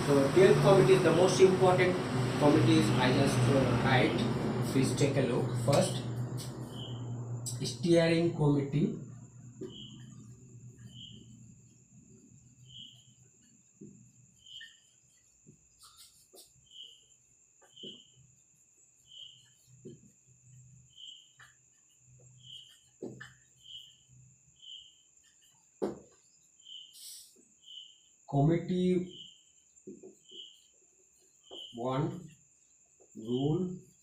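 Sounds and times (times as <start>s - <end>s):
steady high whine: 0.0s - 15.3s
faint chirping: 5.9s - 34.0s
marker strokes on whiteboard: 9.2s - 28.2s, 29.2s - 34.0s.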